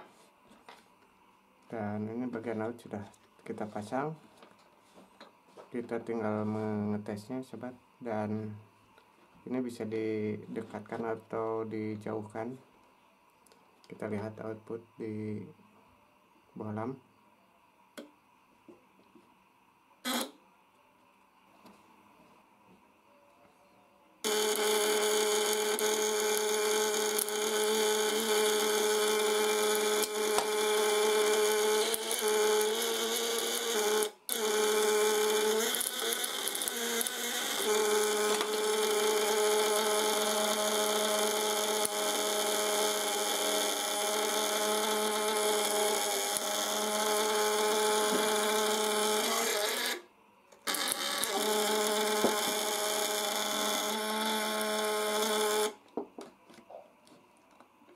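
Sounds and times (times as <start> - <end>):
contact breaker buzzing: 20.0 - 20.5, 24.2 - 56.0.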